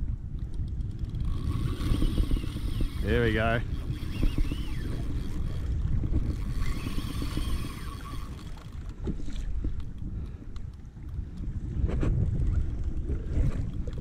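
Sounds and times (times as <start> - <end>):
wind rumbling on microphone: 0.0 - 14.0
water sloshing against kayak hull: 3.7 - 14.0.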